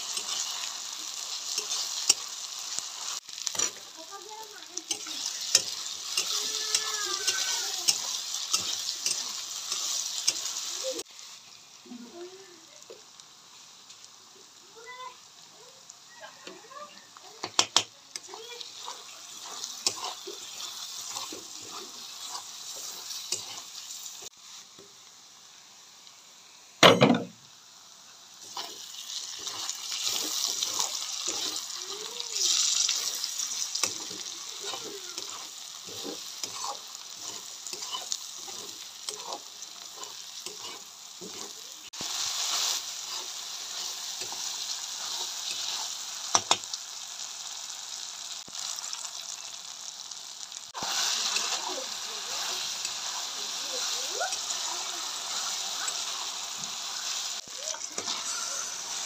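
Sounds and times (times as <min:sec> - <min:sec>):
spatula scraping a pan: 0:00.0 - 0:03.9, 0:04.8 - 0:11.0, 0:18.2 - 0:24.3, 0:28.4 - 0:46.6, 0:50.8 - 0:57.2, 0:57.8 - 0:59.0
onions sizzling in oil: 0:00.0 - 0:59.0.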